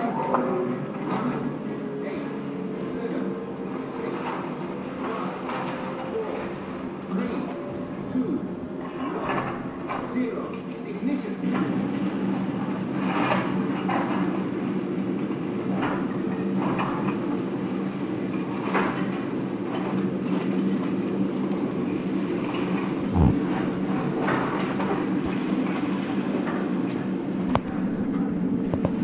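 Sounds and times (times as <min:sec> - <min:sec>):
excavator engine running: 0:19.2 - 0:29.0.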